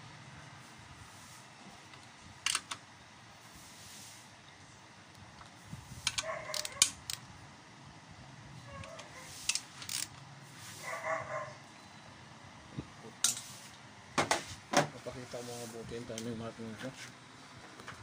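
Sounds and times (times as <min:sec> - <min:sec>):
socket wrench clicking on bolts: 0:02.4 - 0:02.8, 0:06.0 - 0:07.3, 0:08.8 - 0:10.2
dog barking: 0:06.2 - 0:06.8, 0:10.8 - 0:11.6.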